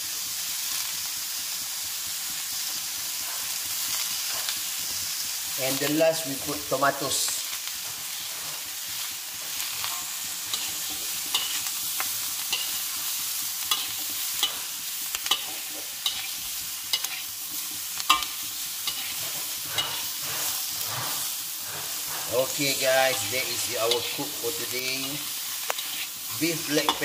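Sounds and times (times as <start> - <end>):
food sizzling in a wok: 0.0 - 27.0
metal spatula scraping a pan: 7.6 - 27.0.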